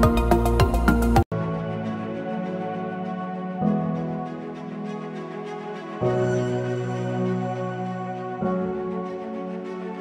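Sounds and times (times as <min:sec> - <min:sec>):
music with drum beat: 0:00.0 - 0:01.2
soft gentle music: 0:00.0 - 0:10.0.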